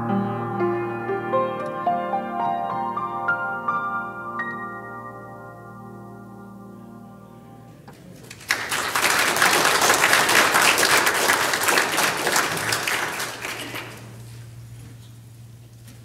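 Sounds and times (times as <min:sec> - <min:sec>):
grand piano chord: 0:00.0 - 0:08.2
congregation applauding: 0:08.2 - 0:14.3.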